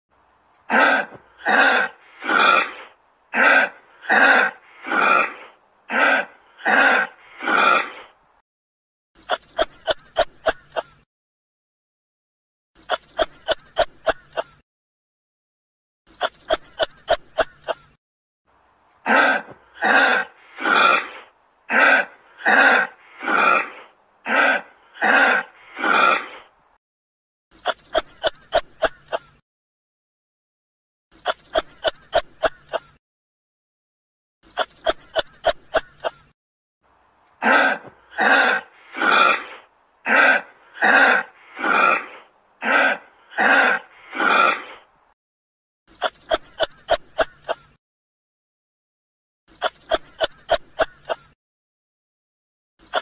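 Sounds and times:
kangaroo raspy calls: 0:00.7 - 0:08.1, 0:09.2 - 0:11.0, 0:12.8 - 0:14.6, 0:16.1 - 0:18.0, 0:19.0 - 0:26.5, 0:27.5 - 0:29.4, 0:31.1 - 0:33.0, 0:34.4 - 0:36.3, 0:37.4 - 0:44.9, 0:45.9 - 0:47.8, 0:49.5 - 0:51.4, 0:52.8 - 0:53.0.

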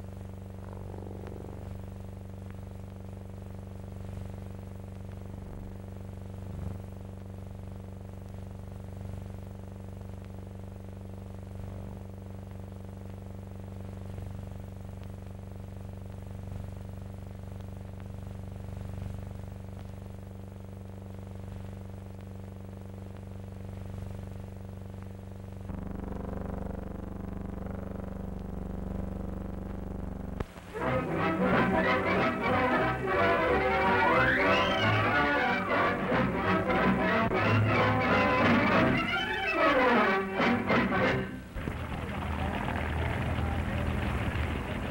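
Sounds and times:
biplane engine drone: 0:00.0 - 0:02.5, 0:30.2 - 0:44.9
film soundtrack hum: 0:00.0 - 0:44.9.

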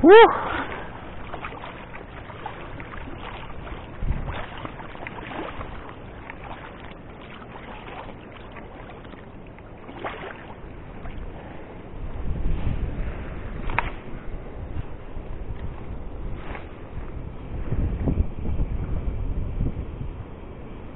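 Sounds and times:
wind on microphone: 0:00.0 - 0:09.2, 0:09.9 - 0:20.9
river water lapping: 0:00.0 - 0:17.7.

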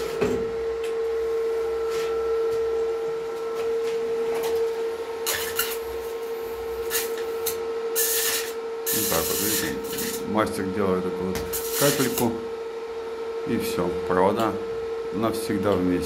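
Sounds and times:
steady high whine: 0:00.0 - 0:16.0
welding arc crackling and hissing: 0:05.2 - 0:10.4, 0:11.4 - 0:12.4.

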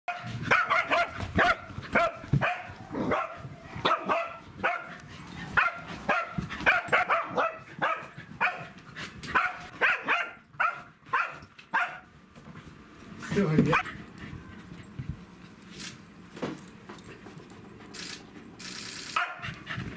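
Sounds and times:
dogs barking: 0:00.1 - 0:12.1, 0:19.2 - 0:19.6.

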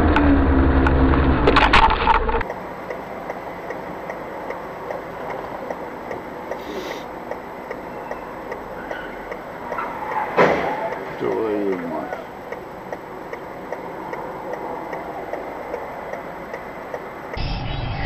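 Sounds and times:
regular ticking: 0:02.4 - 0:09.9, 0:10.8 - 0:17.4.

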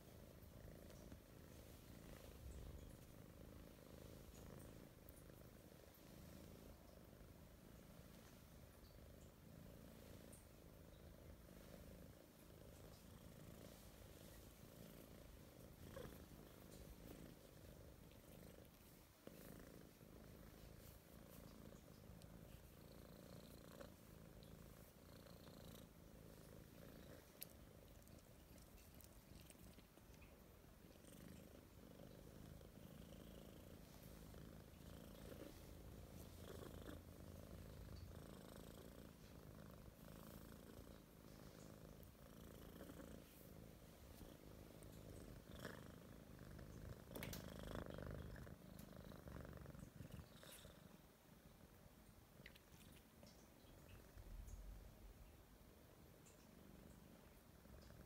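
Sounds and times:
kitten purring: 0:00.0 - 0:58.0
faint clicks: 0:46.8 - 0:47.7.

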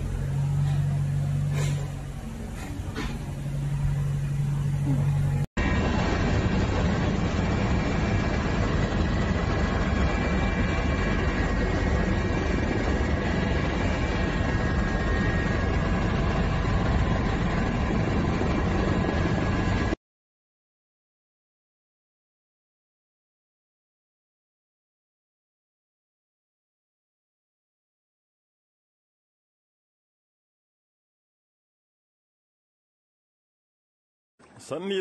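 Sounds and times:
aircraft cabin engine drone: 0:00.0 - 0:20.0
faint steady whines: 0:00.0 - 0:20.0
low steady hum: 0:00.0 - 0:20.0.

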